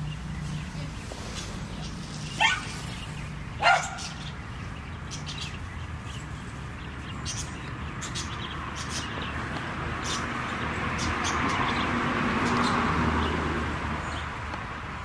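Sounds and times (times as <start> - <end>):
dog barking: 2.4 - 2.7, 3.6 - 4.2.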